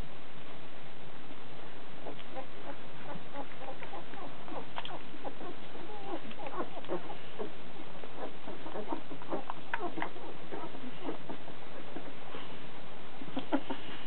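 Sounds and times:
puppies squeaking and whimpering: 2.0 - 12.7.

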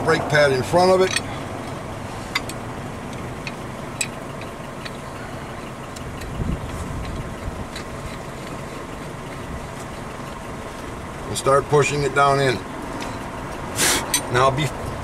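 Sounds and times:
light metal clicks and taps: 1.0 - 10.9.

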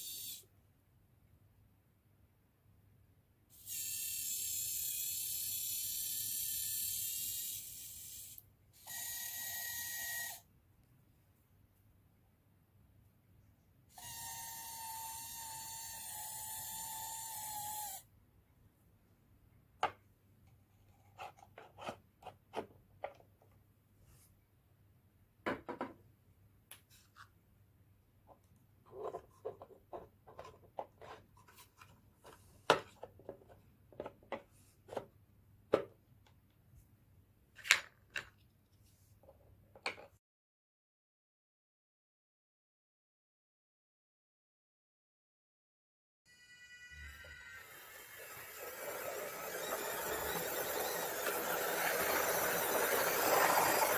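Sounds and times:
small electric motor whirring: 0.0 - 0.4, 3.5 - 10.4, 14.0 - 18.0, 46.3 - 53.9.

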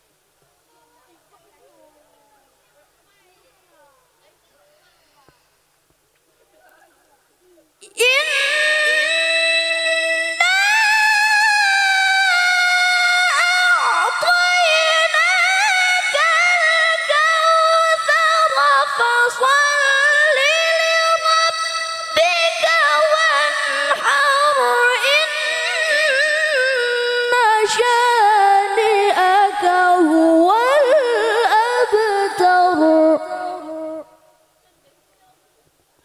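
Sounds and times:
girl chanting into a microphone: 7.8 - 34.2.

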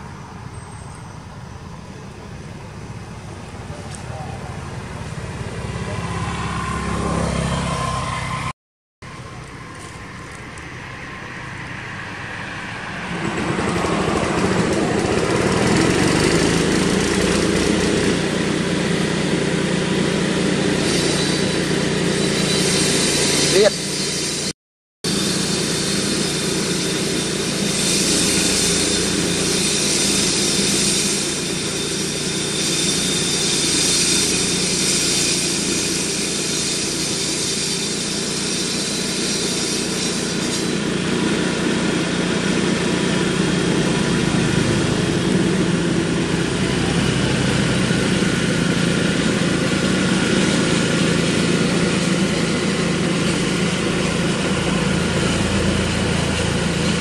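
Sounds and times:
engine idling: 0.0 - 6.4, 40.3 - 57.0.

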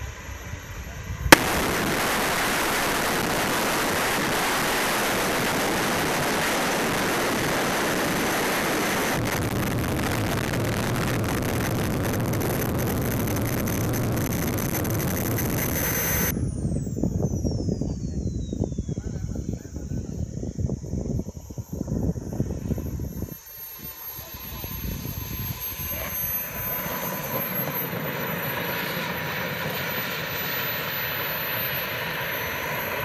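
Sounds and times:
model turbine engine whining: 0.0 - 33.0
deep rumble: 0.1 - 23.3.

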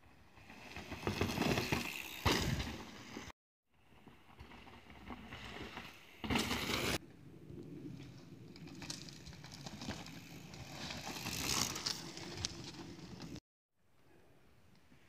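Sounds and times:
bike tyres rolling over dirt: 0.0 - 7.0, 7.6 - 13.4
bike clicking and rattling: 0.3 - 3.3, 8.0 - 13.4.

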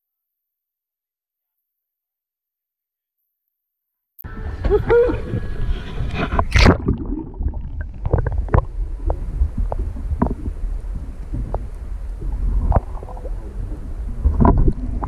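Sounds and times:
muffled underwater sloshing: 4.3 - 15.0.

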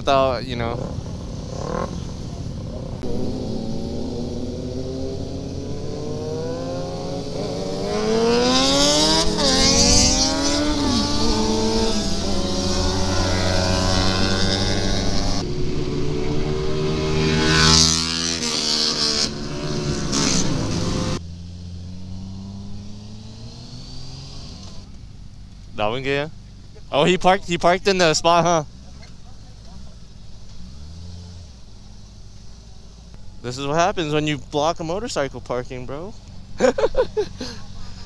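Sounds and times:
motorcycle engine accelerating: 0.0 - 38.0
wind rushing over microphone: 0.7 - 21.2.

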